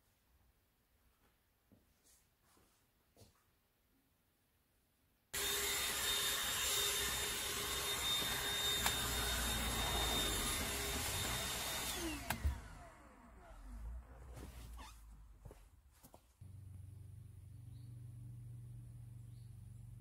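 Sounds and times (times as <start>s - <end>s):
handheld vacuum whining: 5.4s - 14.2s.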